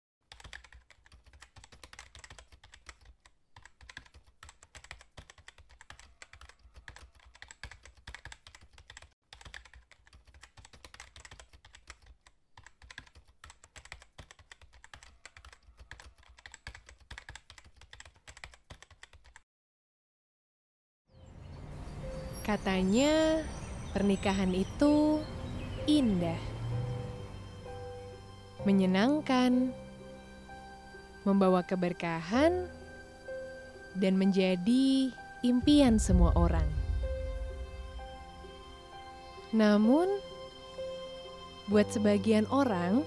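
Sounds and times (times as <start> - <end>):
rapid keyboard typing clicks: 0.3 - 19.4.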